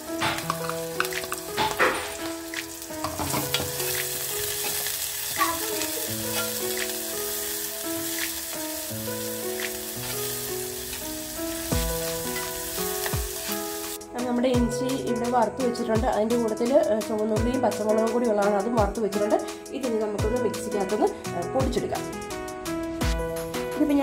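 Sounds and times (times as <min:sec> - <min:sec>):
vegetables sizzling in oil: 0:00.0 - 0:14.0
metal spoon tapping pot: 0:00.2 - 0:02.2.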